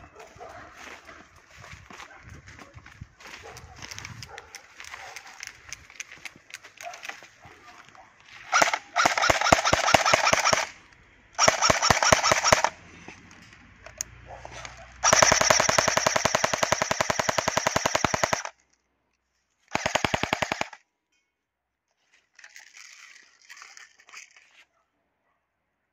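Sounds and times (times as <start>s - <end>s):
airsoft gun firing bursts: 8.5s - 10.8s, 11.4s - 12.8s, 15.0s - 18.6s, 19.7s - 20.8s.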